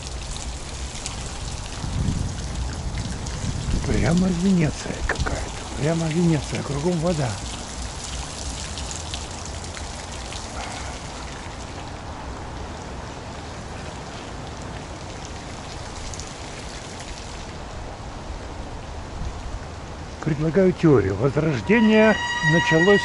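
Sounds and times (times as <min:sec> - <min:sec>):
fountain splashing: 0:00.0 - 0:23.0
rain on wet paving: 0:00.0 - 0:23.0.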